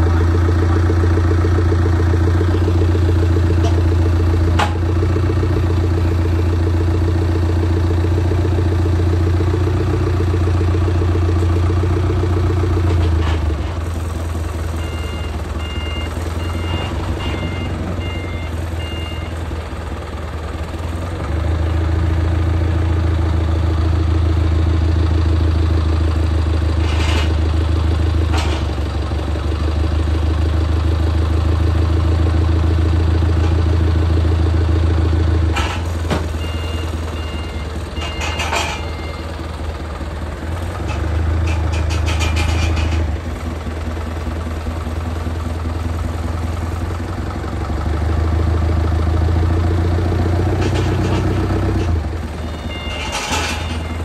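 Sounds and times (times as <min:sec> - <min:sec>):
heavy vehicle engine humming: 0:00.0 - 0:54.0
reversing beeper short beeps: 0:14.6 - 0:19.4, 0:36.2 - 0:39.4, 0:52.4 - 0:54.0.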